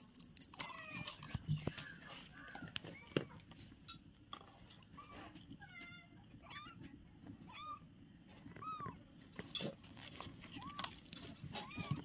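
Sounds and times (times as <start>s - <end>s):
kittens mewing: 10.3s - 12.0s.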